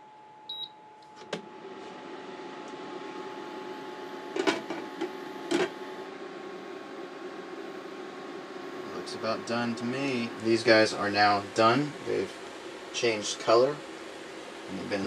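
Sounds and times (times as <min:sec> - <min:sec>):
cooktop fan hum: 0:00.0 - 0:15.0
cooktop beep: 0:00.5 - 0:00.8.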